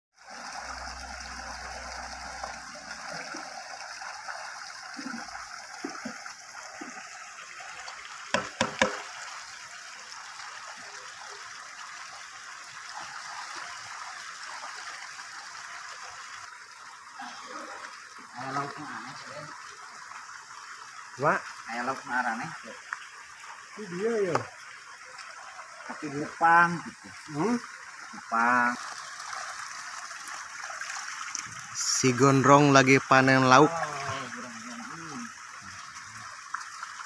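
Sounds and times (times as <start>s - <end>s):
running water rushing: 0.2s - 37.0s
sharp knocks: 8.3s - 9.1s.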